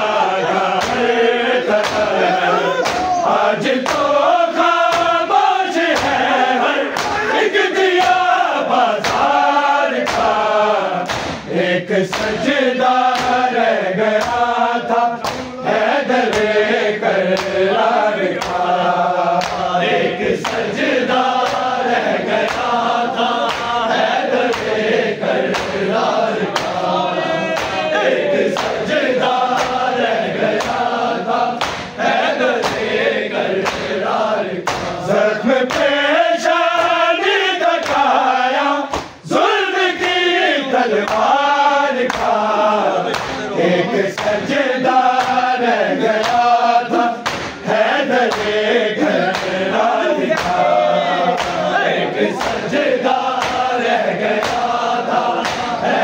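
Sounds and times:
men chanting in chorus: 0.0 - 56.0
beat of sharp strikes: 11.0 - 11.5, 15.2 - 15.6, 31.6 - 32.0, 47.2 - 47.7.

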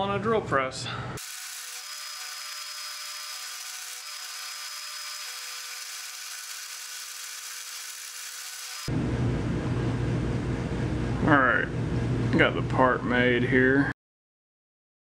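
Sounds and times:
drill press milling metal: 1.2 - 8.9.

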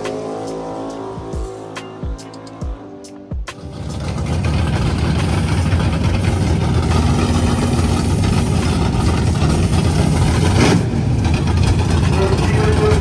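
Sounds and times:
race car engines idling: 3.6 - 13.0.

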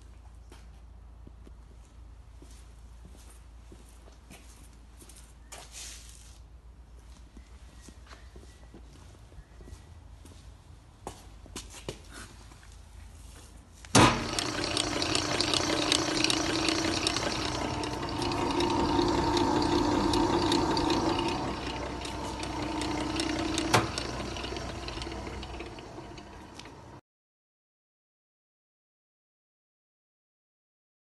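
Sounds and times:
grinder motor humming and whining: 14.0 - 27.0.

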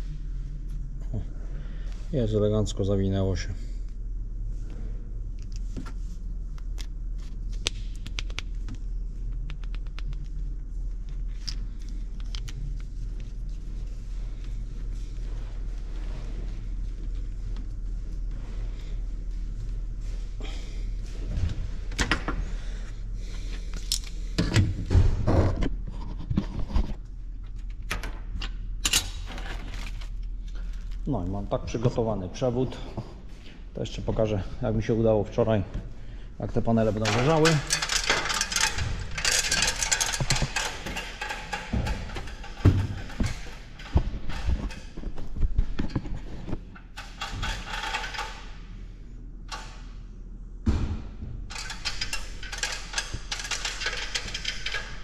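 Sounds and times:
steady low hum: 0.0 - 55.0
tools clicking and scraping: 23.3 - 24.6, 37.0 - 48.6, 51.5 - 55.0.

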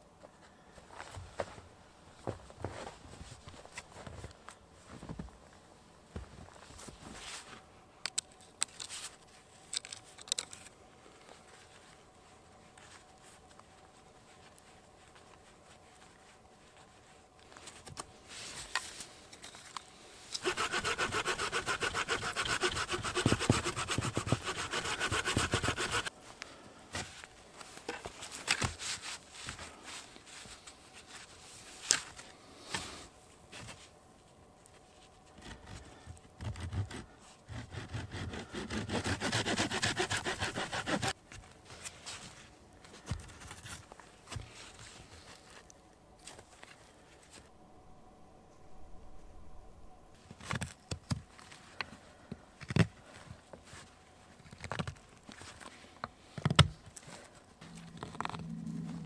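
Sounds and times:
hand saw cutting wood: 20.4 - 26.1, 36.5 - 41.1.

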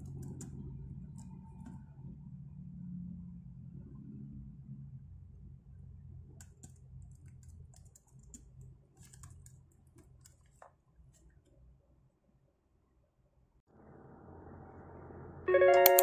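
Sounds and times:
keyboard typing clicks: 15.7 - 16.0.

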